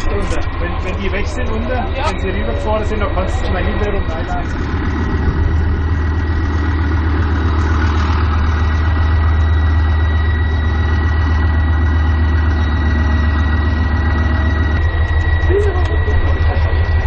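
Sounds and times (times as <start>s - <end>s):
diesel engine running: 0.0s - 17.0s
high engine whine: 0.0s - 17.0s.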